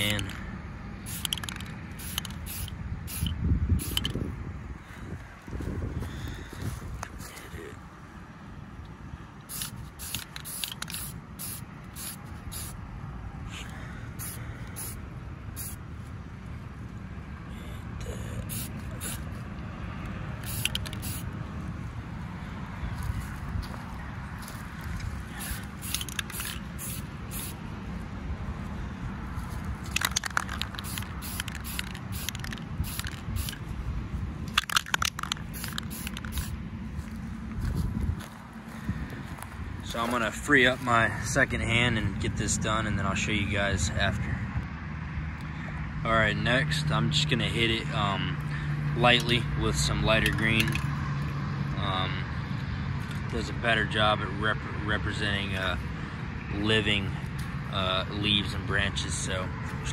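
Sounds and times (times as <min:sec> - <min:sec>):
spray paint can hissing: 0:01.0 - 0:04.2, 0:09.4 - 0:12.8, 0:14.2 - 0:15.8, 0:18.1 - 0:19.4, 0:20.4 - 0:21.3, 0:25.3 - 0:27.6, 0:29.9 - 0:33.6, 0:34.5 - 0:36.6.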